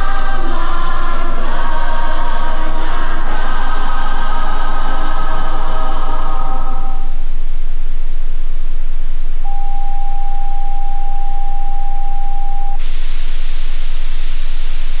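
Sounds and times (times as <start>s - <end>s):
steady test tone: 0.0s - 15.0s
television static hiss: 0.0s - 15.0s.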